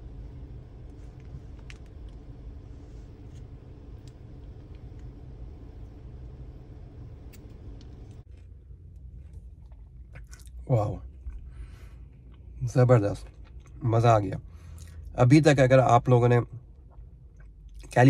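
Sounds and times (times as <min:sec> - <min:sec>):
low hum inside car cabin: 0:00.0 - 0:18.0.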